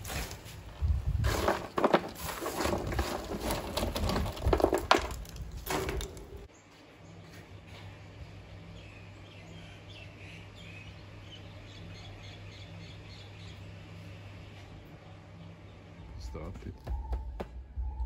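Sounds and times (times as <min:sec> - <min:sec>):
objects knocking and clattering: 0:01.2 - 0:06.5.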